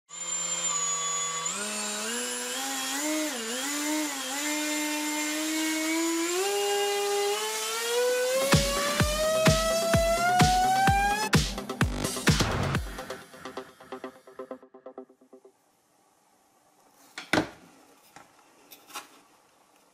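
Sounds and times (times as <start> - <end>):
music with a beat: 8.4 - 15.5.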